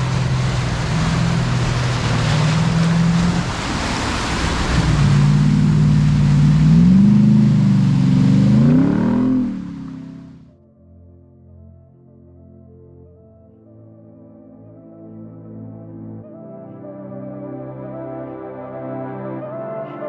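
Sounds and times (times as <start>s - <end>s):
engine running under load: 0.0s - 10.5s
water surging and splashing: 0.0s - 10.5s.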